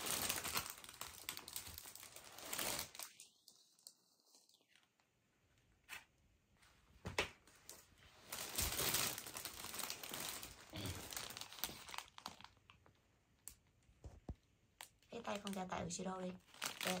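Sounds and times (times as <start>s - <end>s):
packaging crinkling: 0.0s - 5.0s, 7.7s - 13.8s, 14.8s - 17.0s.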